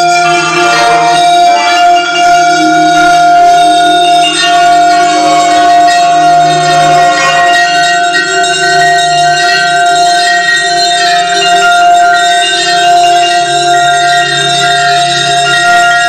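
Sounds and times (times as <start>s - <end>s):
vibraphone notes ringing: 0.0s - 16.0s
steady held electronic tone: 0.2s - 9.8s.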